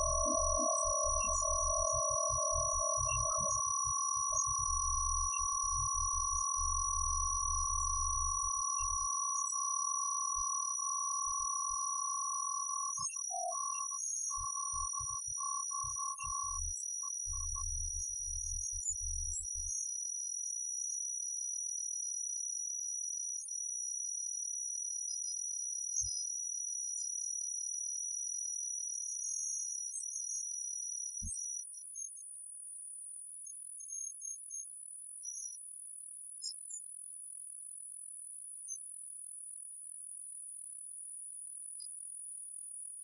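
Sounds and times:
high-pitched whine: 0:00.0 - 0:12.7.

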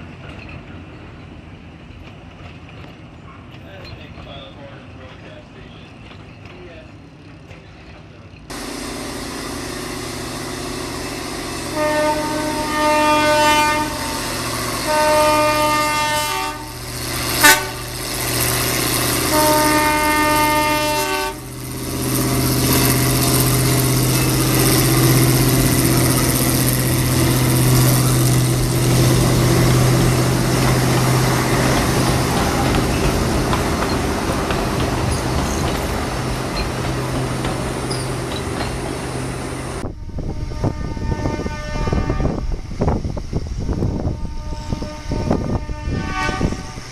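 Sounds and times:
locomotive engine hum: 0:00.0 - 0:46.9
locomotive horn blasts: 0:11.6 - 0:18.0, 0:19.1 - 0:21.5, 0:39.8 - 0:42.5, 0:44.0 - 0:46.8.

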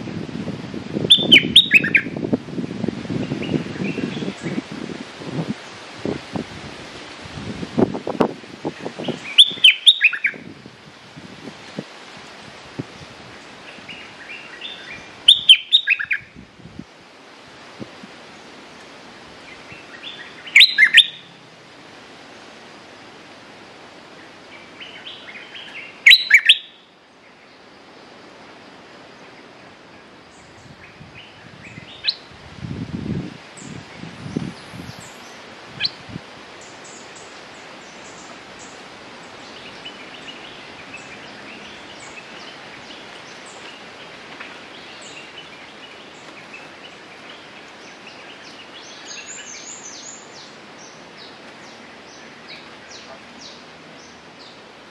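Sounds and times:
bulbul singing whistled notes: 0:01.1 - 0:02.2, 0:09.1 - 0:10.4, 0:13.9 - 0:16.3, 0:19.8 - 0:21.3, 0:24.6 - 0:26.9.

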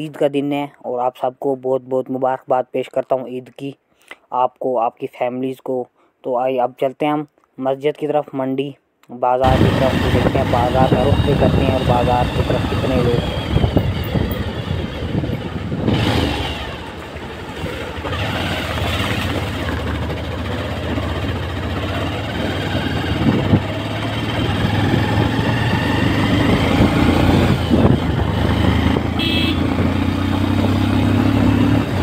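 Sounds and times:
motorcycle engine running: 0:09.4 - 0:32.0
road noise: 0:09.4 - 0:32.0.

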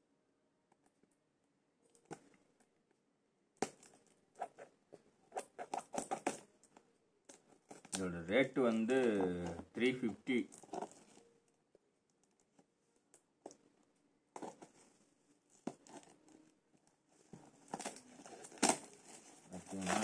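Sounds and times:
cardboard rustling: 0:07.6 - 0:11.3, 0:17.2 - 0:20.0
cardboard flap snapping: 0:17.7 - 0:19.0.

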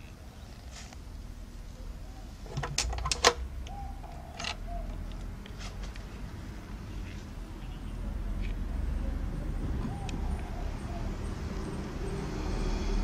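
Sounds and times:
metal barrel bolt clacking: 0:02.5 - 0:03.4.

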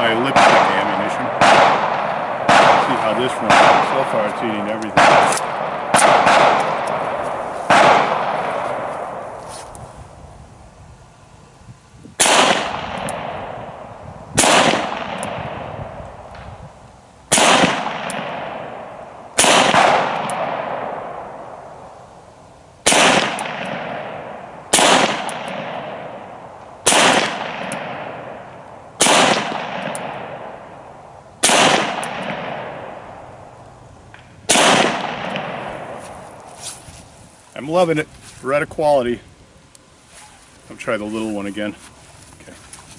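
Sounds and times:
pistol shots with echo: 0:00.0 - 0:09.4, 0:12.2 - 0:13.8, 0:14.4 - 0:16.4, 0:17.3 - 0:21.7, 0:22.8 - 0:33.3, 0:34.5 - 0:36.3.

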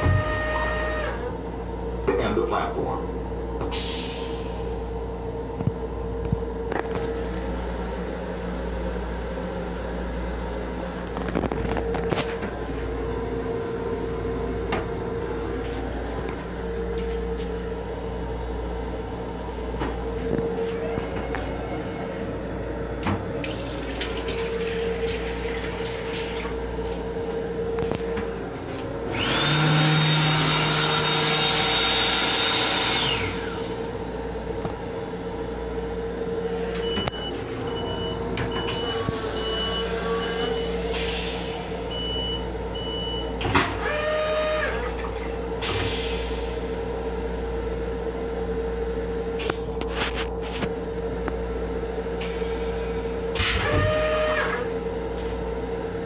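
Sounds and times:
railcar running hum: 0:00.0 - 0:56.0
hand dryer blowing: 0:28.1 - 0:33.8.

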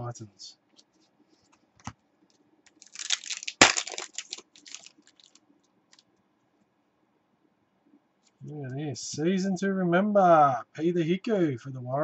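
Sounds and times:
cards flicked and rustling: 0:02.7 - 0:05.4.

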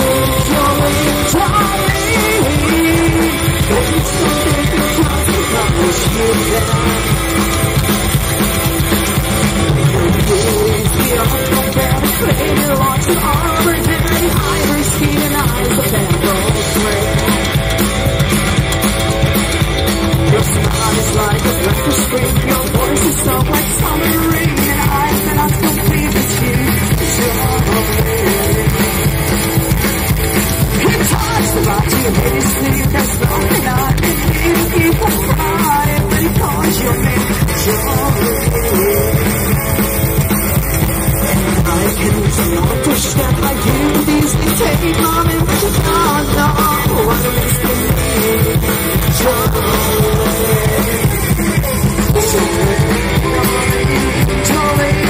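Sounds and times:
person singing: 0:00.0 - 0:17.9, 0:20.1 - 0:55.0
drum kit: 0:00.0 - 0:55.0
electric guitar: 0:00.0 - 0:55.0.

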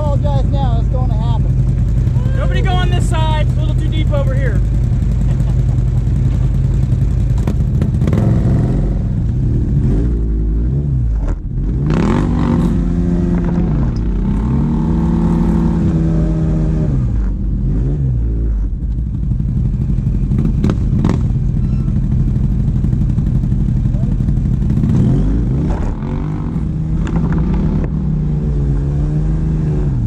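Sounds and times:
engine idling: 0:00.0 - 0:08.2, 0:18.6 - 0:24.9
engine revving: 0:00.0 - 0:30.0.

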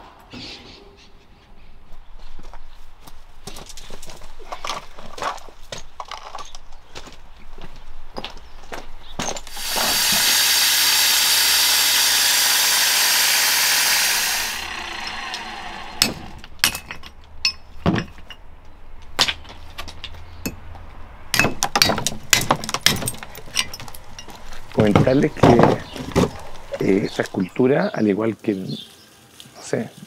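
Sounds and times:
angle grinder cutting stone: 0:09.5 - 0:16.6, 0:22.8 - 0:27.6.

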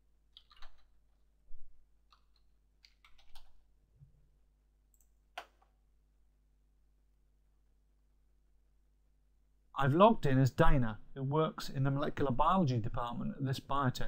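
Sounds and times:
computer keyboard typing: 0:00.3 - 0:00.9, 0:02.1 - 0:03.6.

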